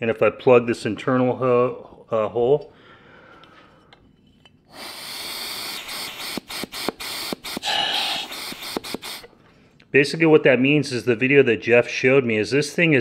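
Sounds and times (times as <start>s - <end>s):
air hissing through passages: 4.7s - 9.3s.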